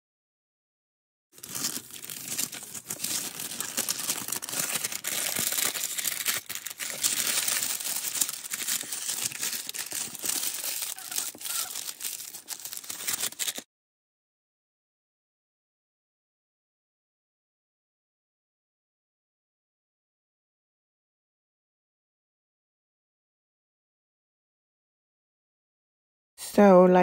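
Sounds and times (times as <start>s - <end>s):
cling film crinkling: 1.4s - 13.7s.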